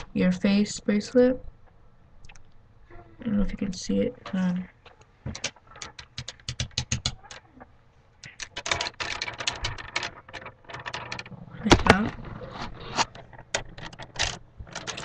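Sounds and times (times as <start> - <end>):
plastic beads clicking: 4.9 - 7.4, 8.2 - 12.1.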